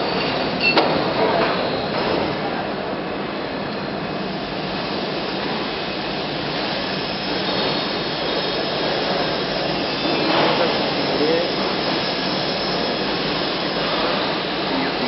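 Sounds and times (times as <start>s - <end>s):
machine hissing and rushing: 4.5s - 15.0s.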